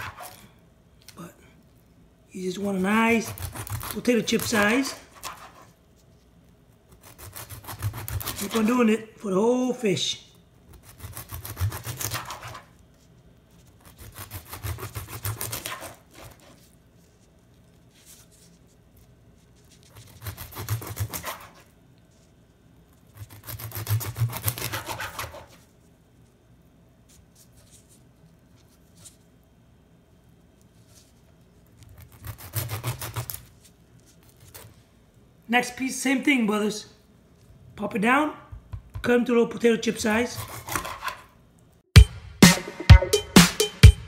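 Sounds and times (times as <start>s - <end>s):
knife sawing through fish: 0.0s - 0.4s, 3.1s - 5.7s, 6.9s - 8.7s, 10.7s - 12.7s, 13.8s - 16.6s, 19.8s - 21.7s, 23.1s - 25.6s, 31.9s - 33.5s, 40.3s - 41.3s.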